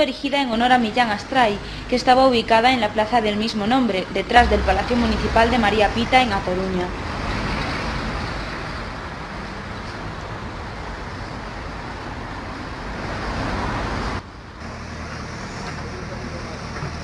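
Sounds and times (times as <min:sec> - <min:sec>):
engine and traffic rumble: 0:00.0 - 0:17.0
low hum: 0:04.4 - 0:06.7.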